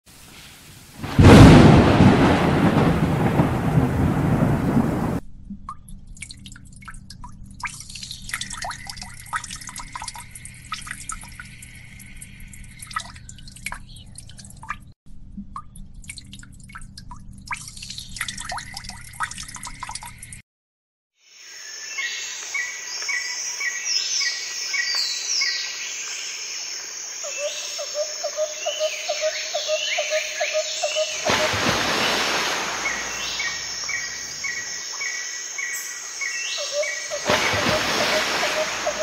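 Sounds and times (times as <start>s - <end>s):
rainwater dripping from leaves: 0.9s - 20.4s, 30.7s - 39.0s
thunder clap rumbling: 1.0s - 5.2s, 31.2s - 34.4s.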